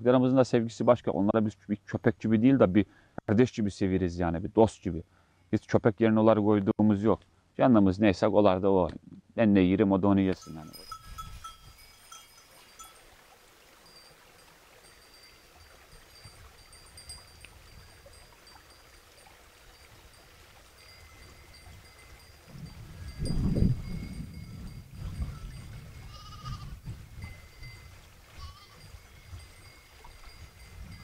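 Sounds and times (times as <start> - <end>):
high ringing tones: 10.4 - 13.1
sheep bleat: 26.0 - 26.8, 28.4 - 29.3.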